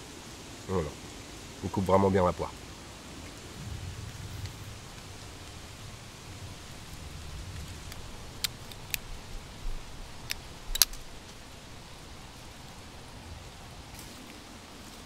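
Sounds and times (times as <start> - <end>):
steady light hiss: 0.0 - 15.0
folding knife clicks and taps: 10.2 - 11.0.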